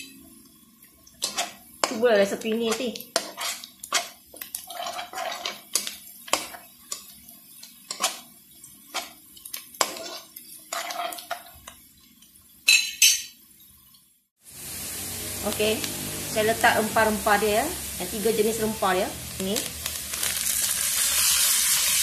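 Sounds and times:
spatula scraping and knocking wok: 1.2 - 11.8, 15.6 - 22.0.

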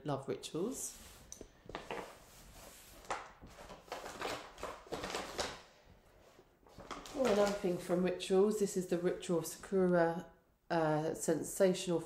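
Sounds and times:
plastic containers rustling and knocking: 1.6 - 2.2, 6.7 - 7.9.

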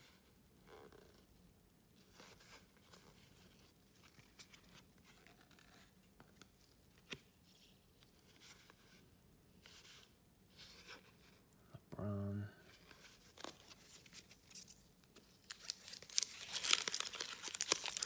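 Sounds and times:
trading cards and wrappers rustling: 12.8 - 18.0.

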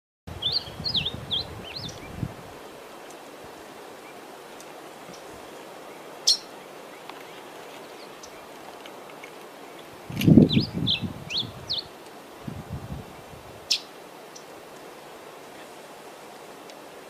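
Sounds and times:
songbird chirping and whistling: 0.4 - 2.1, 10.4 - 11.9.

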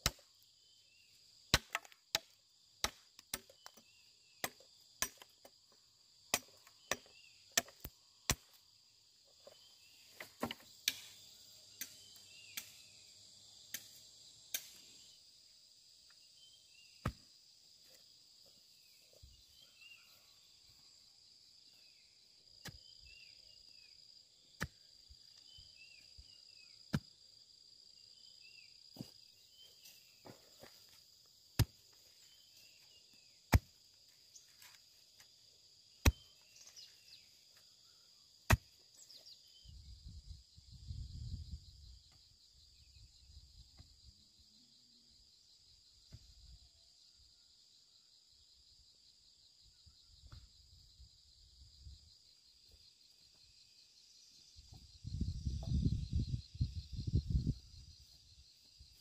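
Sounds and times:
sharp chopping strikes: 1.5 - 3.6, 31.6 - 31.8, 33.5 - 33.8, 36.0 - 36.3, 38.5 - 38.8
high-pitched insect drone: 49.6 - 59.0.

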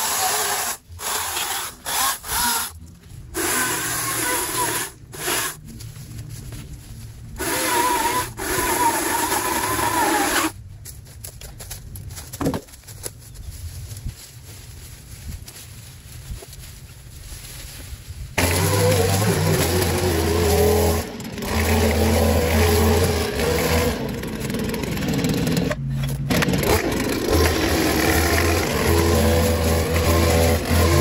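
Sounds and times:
electric chainsaw cutting brush: 0.0 - 5.6, 7.4 - 10.6, 18.4 - 31.0
brush rustling and snapping: 10.7 - 20.9.

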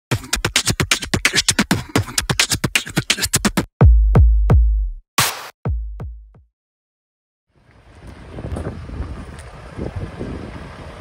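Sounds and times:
drum machine beats: 0.1 - 6.5
deep bass-drum hits falling in pitch: 3.5 - 6.5.

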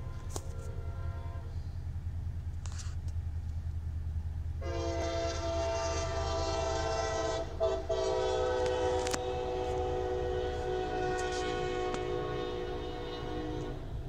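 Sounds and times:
locomotive air horn: 0.0 - 1.8, 4.6 - 14.0
low steady rumble: 0.0 - 14.0.

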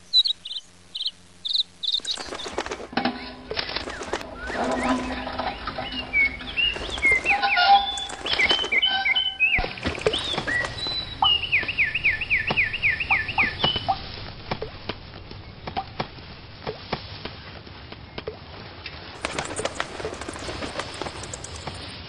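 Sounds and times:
cartoon sparrows chirping: 0.0 - 16.0, 19.2 - 22.0.

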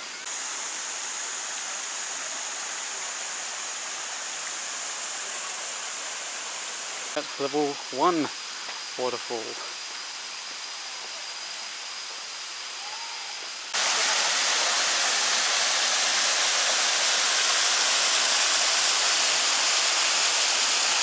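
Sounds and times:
open-air hiss: 0.0 - 21.0
waterfall rushing: 13.7 - 21.0.

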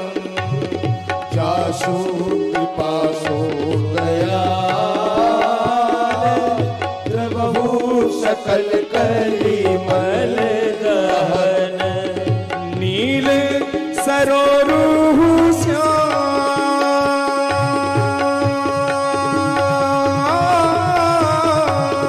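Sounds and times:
devotional instrumental melody: 0.0 - 22.0
hand drum rhythm: 0.0 - 22.0.

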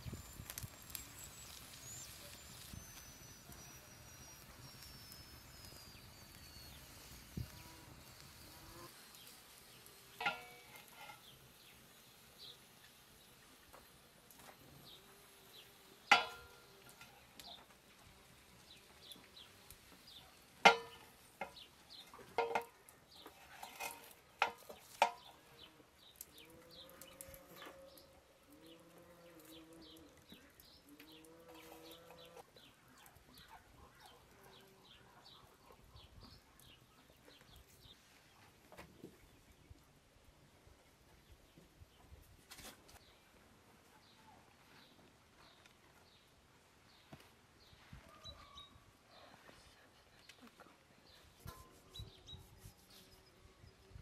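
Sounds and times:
small birds chirping: 0.0 - 39.8, 43.9 - 54.0
farmyard animal calls: 0.8 - 9.4, 25.2 - 37.6.

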